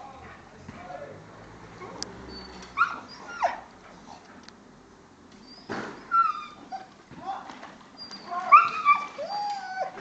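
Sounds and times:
dog whining: 0:01.8 - 0:04.2, 0:05.4 - 0:07.0, 0:08.0 - 0:10.0.

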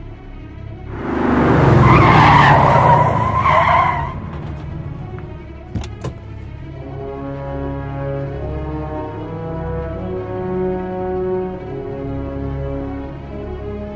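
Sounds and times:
music: 0:00.0 - 0:00.9, 0:04.9 - 0:13.9
car tyres screeching: 0:00.9 - 0:06.8.

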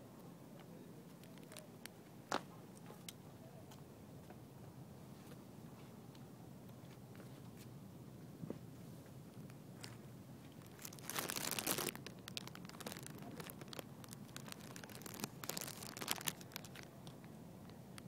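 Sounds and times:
faint background hiss: 0:00.0 - 0:18.0
phone handling crackling and rustling: 0:10.6 - 0:16.9.

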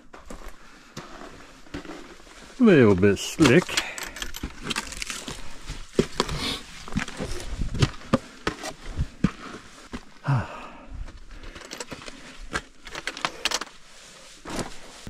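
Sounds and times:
footsteps on a trail: 0:00.0 - 0:12.7
person breathing: 0:03.7 - 0:04.4, 0:05.3 - 0:06.7, 0:10.1 - 0:12.5.

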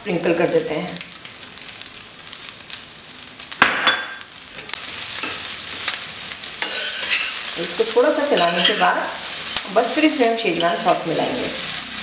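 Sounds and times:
food sizzling in a wok: 0:00.0 - 0:12.0
metal spatula scraping pan: 0:06.6 - 0:07.5, 0:08.3 - 0:08.9.

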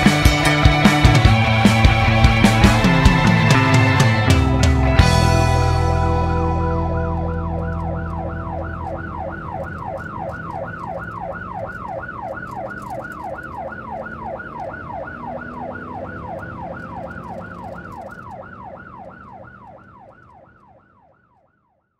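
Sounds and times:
police siren yelping: 0:00.0 - 0:21.8.

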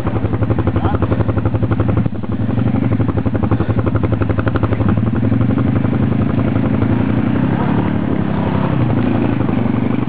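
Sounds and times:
atv engine running: 0:00.0 - 0:10.0.

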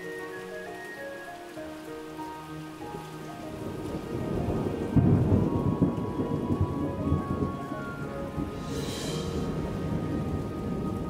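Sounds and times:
steady rain: 0:00.0 - 0:11.0
thunder rumbling: 0:02.8 - 0:11.0.

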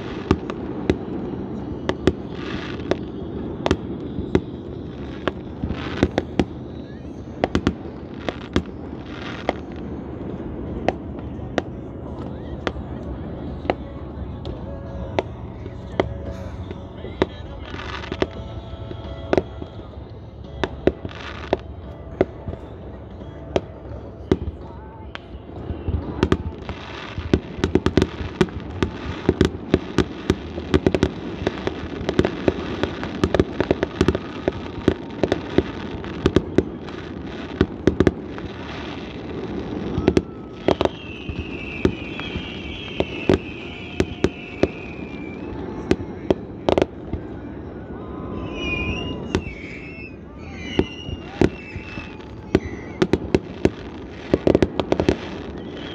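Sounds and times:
fireworks bangs and crackle: 0:00.0 - 0:55.9
firework whistle falling in pitch: 0:25.9 - 0:55.9.

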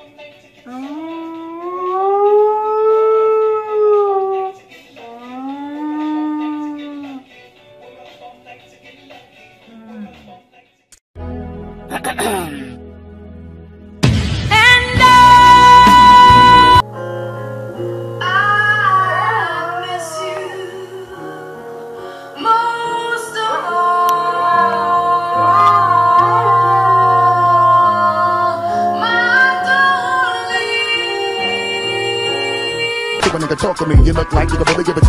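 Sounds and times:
dog howling: 0:00.7 - 0:07.2
music with sustained chords: 0:11.2 - 0:33.2.

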